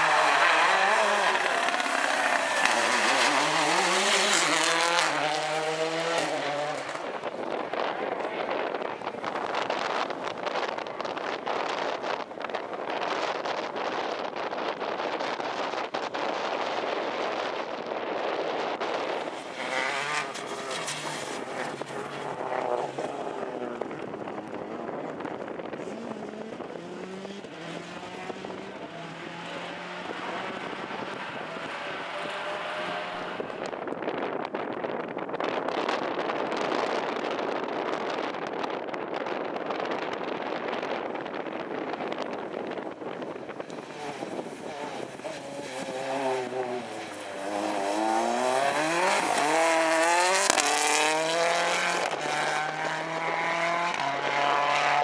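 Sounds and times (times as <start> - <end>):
car engine accelerating: 0.0 - 12.6, 18.7 - 34.1, 40.6 - 55.0.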